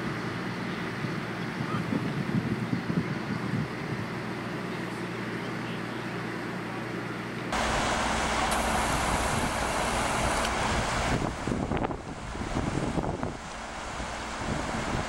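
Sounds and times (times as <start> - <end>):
wind on microphone: 0.9 - 4.2, 7.6 - 15.0
floodwater rushing: 7.6 - 15.0
low hum: 7.6 - 15.0.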